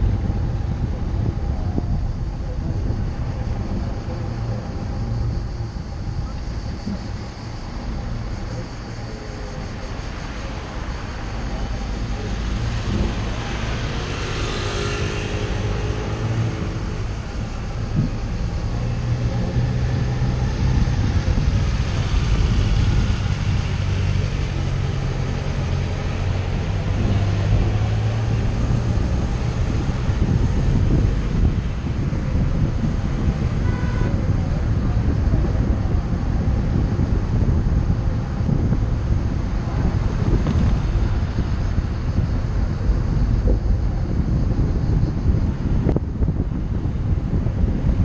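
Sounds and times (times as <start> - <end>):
car engine and road rumble: 0.0 - 48.0.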